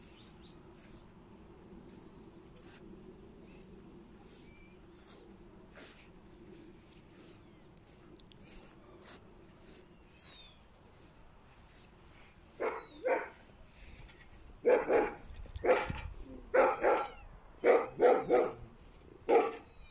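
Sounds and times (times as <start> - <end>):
dog barking: 12.6 - 13.4, 14.6 - 18.7, 19.3 - 19.6.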